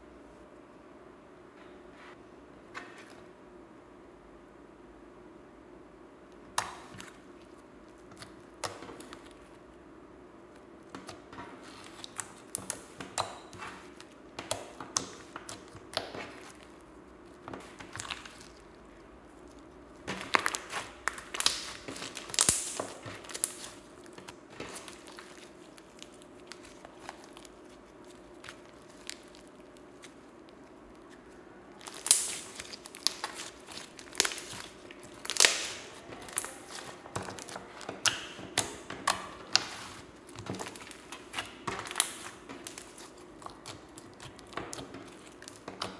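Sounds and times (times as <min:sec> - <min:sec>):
slime squeezed by hand crackling: 0:19.5 - 0:45.9.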